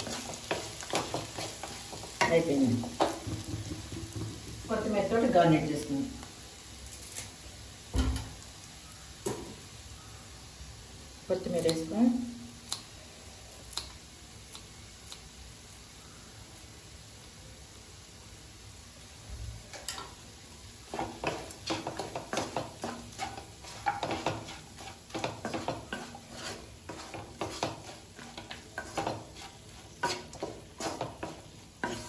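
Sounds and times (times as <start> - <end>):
spatula scraping pan: 0.0 - 4.7, 20.9 - 32.0.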